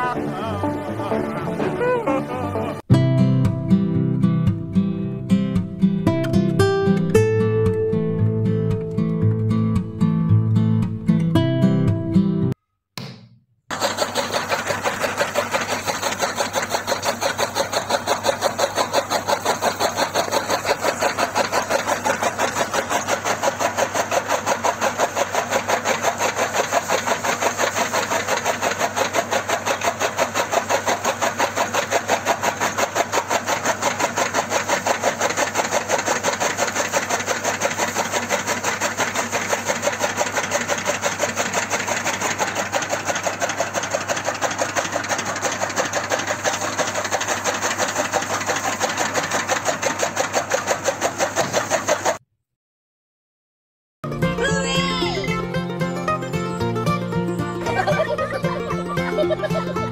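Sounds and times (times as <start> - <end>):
cutter chopping stalks: 13.0 - 52.2
small electric motor running: 13.7 - 52.2, 57.6 - 59.6.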